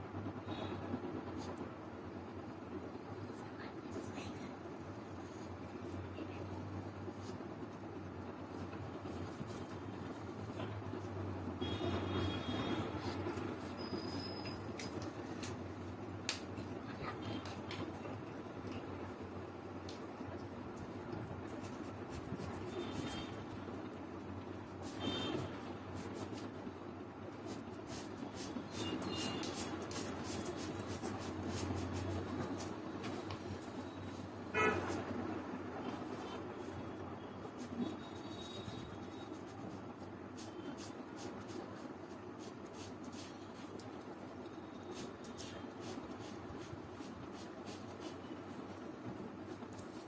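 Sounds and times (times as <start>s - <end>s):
marker rubbing on paper: 8.6s - 10.7s, 11.6s - 14.9s, 21.4s - 23.5s, 24.7s - 26.6s, 27.3s - 35.2s, 36.1s - 50.0s.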